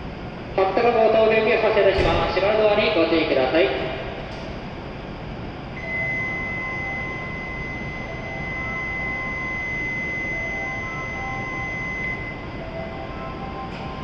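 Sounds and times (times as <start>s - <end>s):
low hum of train: 0.0s - 14.0s
high electronic warning tone: 5.7s - 14.0s.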